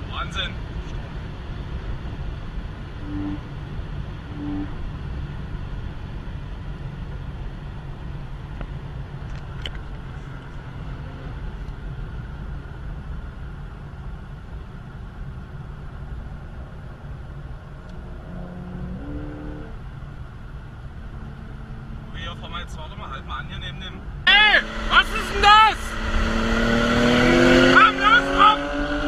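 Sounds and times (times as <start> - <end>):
car cabin road rumble: 0.0 - 29.0.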